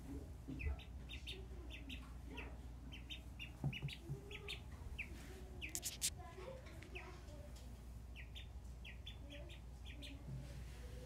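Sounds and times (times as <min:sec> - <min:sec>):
duckling peeping: 0:00.5 - 0:06.1, 0:08.1 - 0:10.2.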